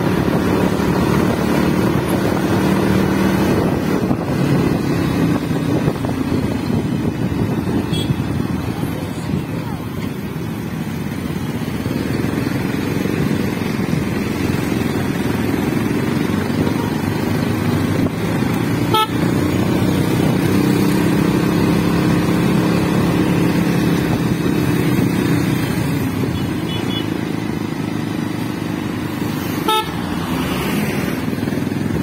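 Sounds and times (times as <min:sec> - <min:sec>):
wind noise: 0:00.0 - 0:09.8
motorcycle engine: 0:00.0 - 0:32.0
horn honks: 0:07.8 - 0:08.4, 0:18.8 - 0:19.4, 0:26.3 - 0:27.2, 0:29.5 - 0:30.2.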